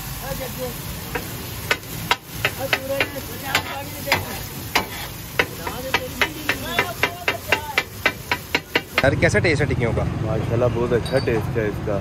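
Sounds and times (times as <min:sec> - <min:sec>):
oil sizzling: 0:00.0 - 0:09.8
metal spatula clacking on iron: 0:01.1 - 0:09.1.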